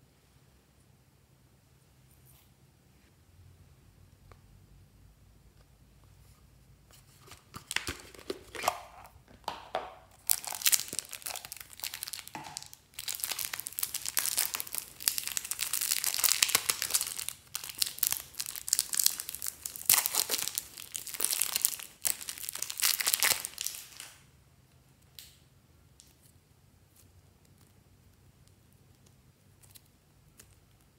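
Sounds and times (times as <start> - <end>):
plastic packaging crinkling: 7.1 - 24.2.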